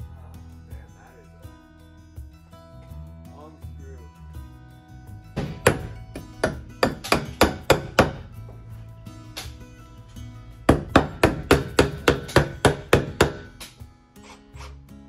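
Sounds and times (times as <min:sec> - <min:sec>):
background music: 0:00.0 - 0:15.0
hammer striking wood: 0:05.4 - 0:08.6, 0:10.7 - 0:13.8.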